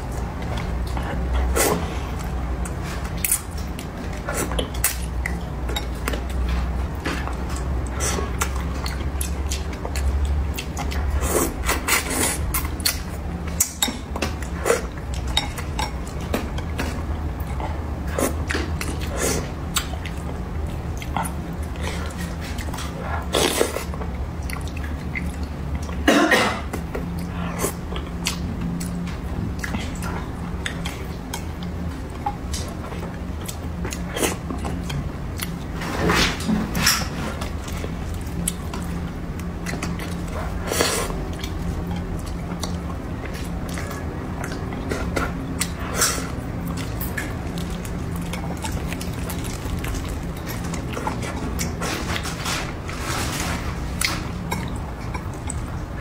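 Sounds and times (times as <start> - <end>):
wet chewing: 0.1 - 26.0, 26.7 - 35.7, 37.3 - 52.5
person coughing: 26.0 - 26.7.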